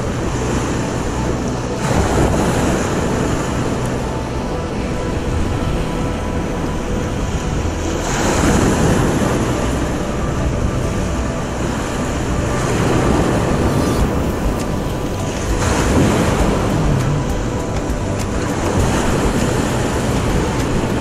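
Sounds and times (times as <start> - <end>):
wind buffeting microphone: 0.0 - 21.0
surf breaking on a beach: 4.7 - 21.0.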